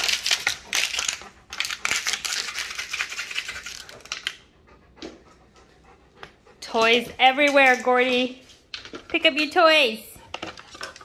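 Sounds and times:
plastic bottle crinkling: 0.0s - 4.4s.

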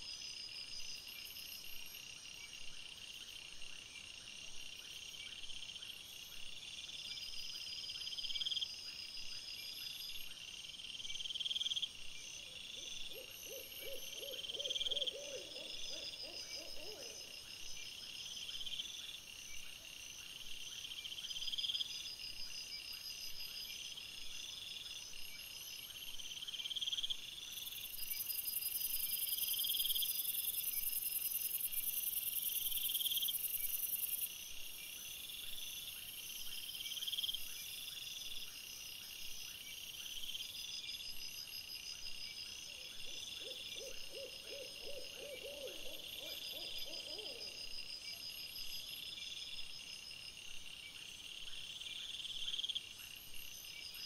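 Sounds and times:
owl hooting: 13.1s - 17.3s, 43.4s - 47.6s
insects trilling: 25.6s - 50.0s.

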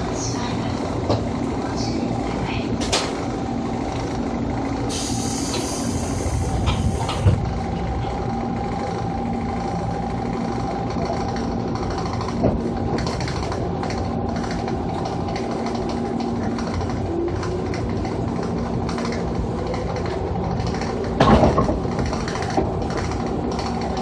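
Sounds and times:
electric train rumble and whine: 0.0s - 24.0s
brake air hiss: 4.9s - 7.4s.

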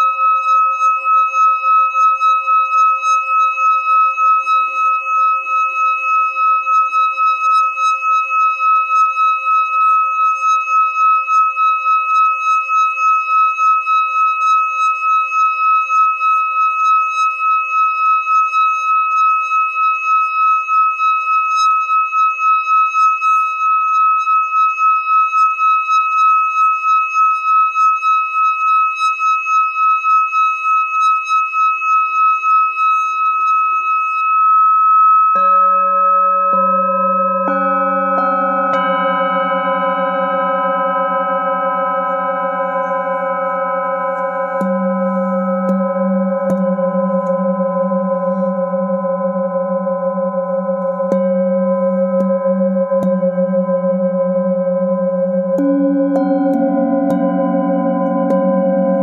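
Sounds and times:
singing bowl pulsing ring: 0.0s - 59.0s
struck bowl deep ringing: 35.4s - 59.0s.

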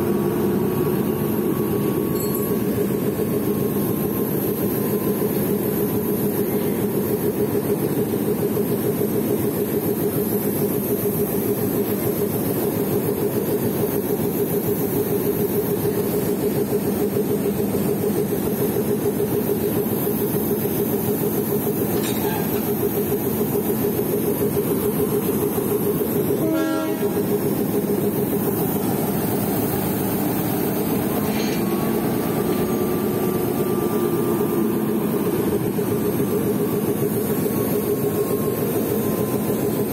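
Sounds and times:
diesel locomotive engine idling: 0.0s - 39.9s.

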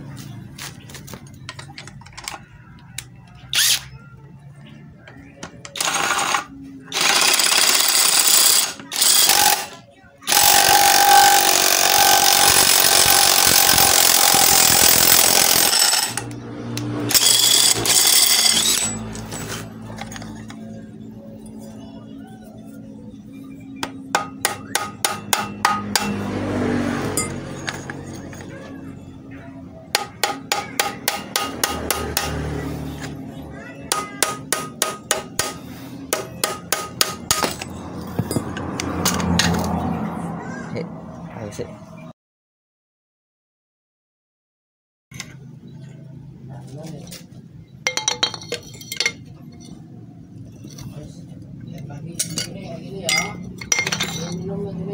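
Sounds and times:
metal scraping: 5.6s - 21.9s
impact wrench hammering: 5.7s - 19.4s, 23.8s - 26.3s, 29.9s - 32.5s, 33.9s - 39.6s
hammer striking steel: 23.8s - 26.4s, 29.9s - 32.6s, 33.8s - 39.7s.

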